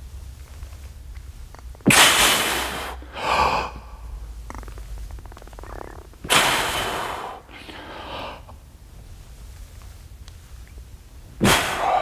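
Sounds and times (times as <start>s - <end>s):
man breathing sharply: 2.2s - 4.2s, 6.3s - 8.6s, 11.4s - 12.0s.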